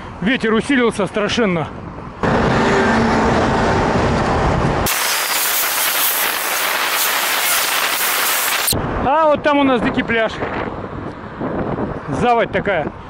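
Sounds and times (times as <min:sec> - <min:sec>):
passing highway traffic: 0:00.0 - 0:09.0, 0:10.4 - 0:13.0
wind on microphone: 0:03.3 - 0:13.0
high hiss: 0:04.9 - 0:08.8.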